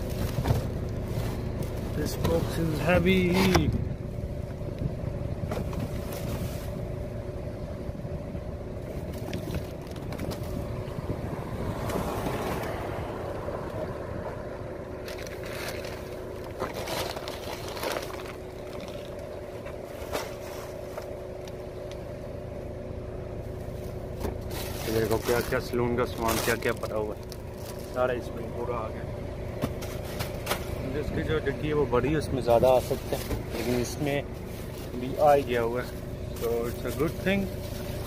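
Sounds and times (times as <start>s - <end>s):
car engine idling: 0.0s - 38.0s
boxes and bags knocking and scraping: 16.6s - 19.1s.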